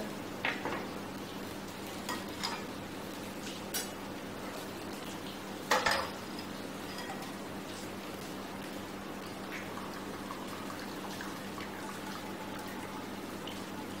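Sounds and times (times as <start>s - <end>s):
cookware clink: 5.7s - 6.2s.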